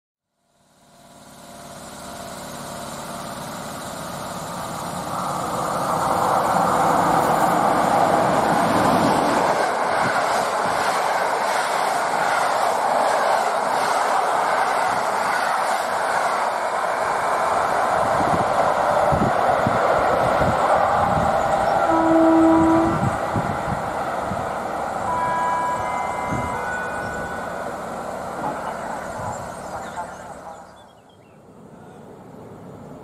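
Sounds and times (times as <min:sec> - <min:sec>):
train wheels rumbling on rails: 0:01.0 - 0:30.8.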